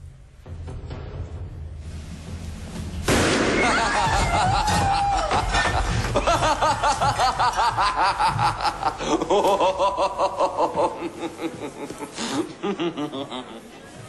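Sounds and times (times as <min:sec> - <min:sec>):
man laughing: 0:03.6 - 0:13.7.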